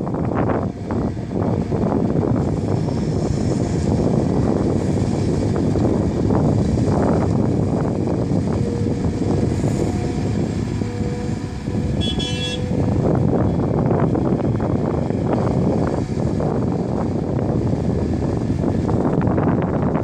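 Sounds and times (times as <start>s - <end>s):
excavator diesel engine and hydraulics: 0.0s - 20.0s
brief high tone: 12.0s - 12.7s.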